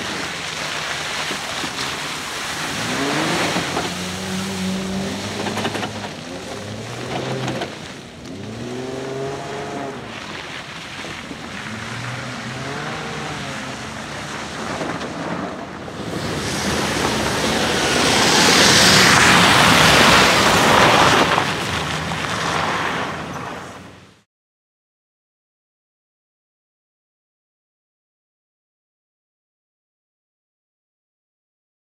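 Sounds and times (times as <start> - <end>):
engine revving: 0.0 - 10.7, 11.4 - 23.2.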